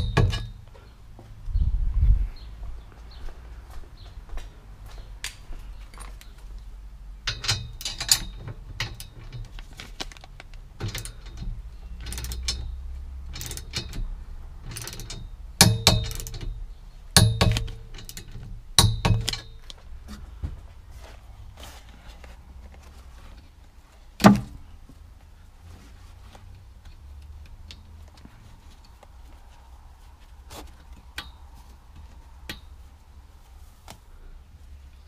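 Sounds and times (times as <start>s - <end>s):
ratchet wrench clicking: 12.0s - 14.1s.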